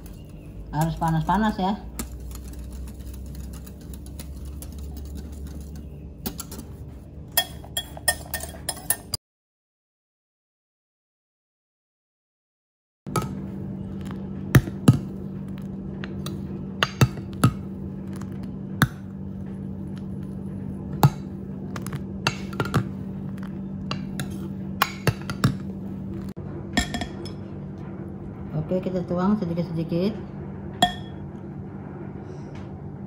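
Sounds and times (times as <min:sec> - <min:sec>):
whisk scraping glass bowl: 0:00.0 - 0:09.2
metal spoon clinking glass bowl: 0:07.3 - 0:09.2.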